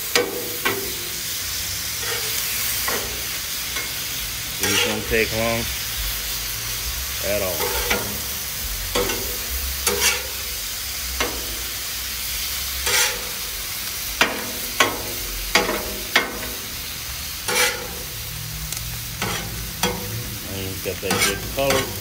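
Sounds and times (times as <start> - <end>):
liver and onions sizzling: 0.0 - 22.0
metal spatula scraping steel: 1.9 - 4.0, 4.6 - 5.4, 7.5 - 10.6, 12.8 - 13.4, 17.4 - 18.2, 19.0 - 20.3, 20.9 - 22.0.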